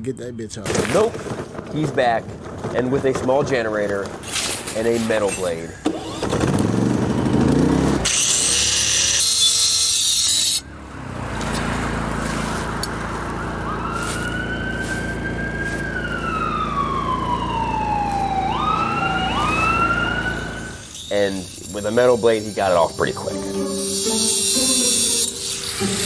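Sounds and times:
generator humming: 5.8s - 7.7s, 22.9s - 26.0s
angle grinder cutting metal: 8.0s - 10.6s, 20.7s - 26.0s
loud harsh hiss: 21.0s - 26.0s.

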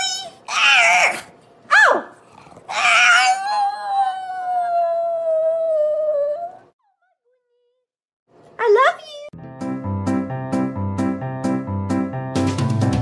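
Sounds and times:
dog howling: 0.5s - 6.7s.

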